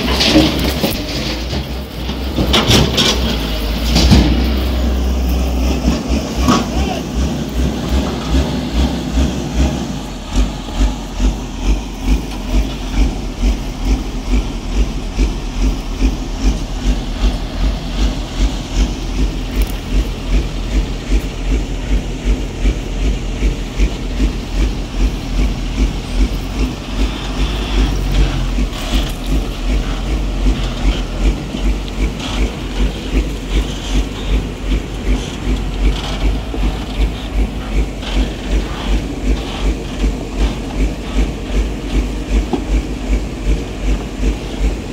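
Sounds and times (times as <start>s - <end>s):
diesel engine running: 0.0s - 44.9s.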